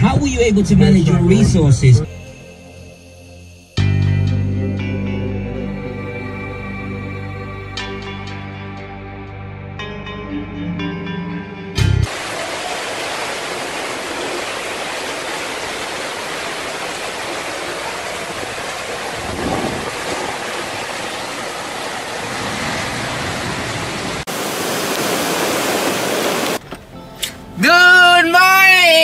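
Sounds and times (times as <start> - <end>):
floodwater rushing over pavement: 12.1 - 26.6
heavy rain: 12.1 - 26.6.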